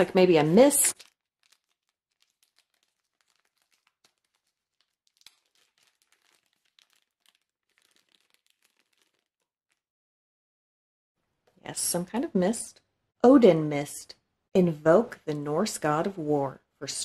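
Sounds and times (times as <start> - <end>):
foil pouch crinkling: 0.8 - 9.8.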